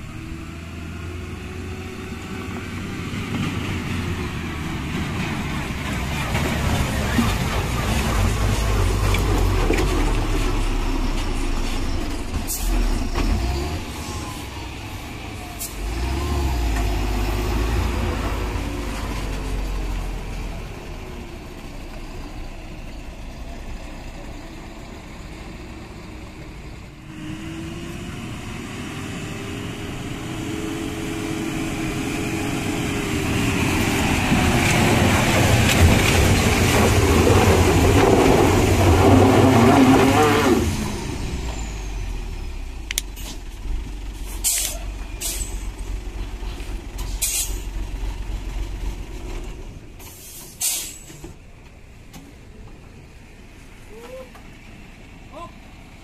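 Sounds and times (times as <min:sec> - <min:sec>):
diesel truck engine rumbling: 0:00.0 - 0:56.0.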